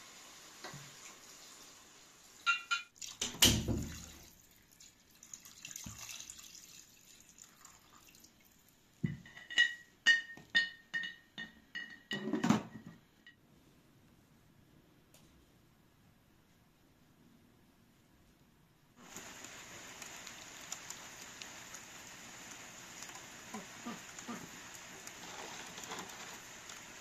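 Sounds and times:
water pouring into pot: 0:00.0 - 0:08.8, 0:19.0 - 0:27.0.

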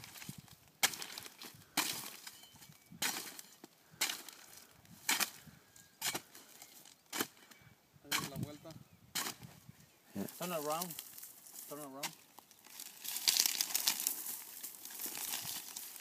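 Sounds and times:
blade chopping agave leaves: 0:00.8 - 0:02.3, 0:03.0 - 0:04.4, 0:05.0 - 0:05.4.

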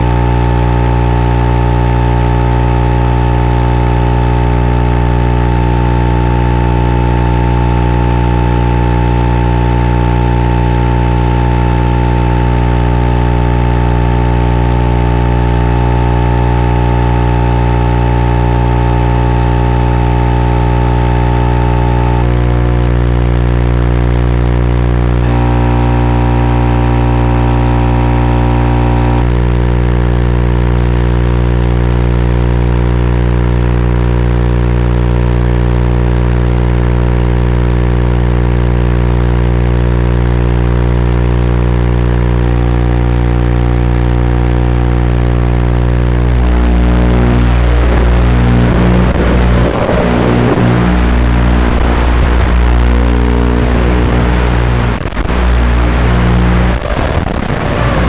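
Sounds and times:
electrical buzz of fixed tones: 0:00.0 - 0:29.7, 0:41.0 - 0:57.1.

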